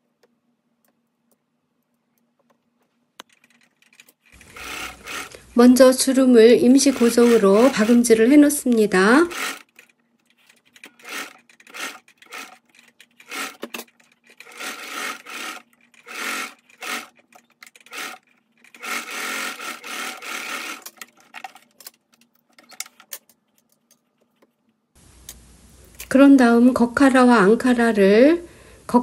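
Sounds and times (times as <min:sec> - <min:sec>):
sewing machine stitching: 0:03.3 - 0:21.8.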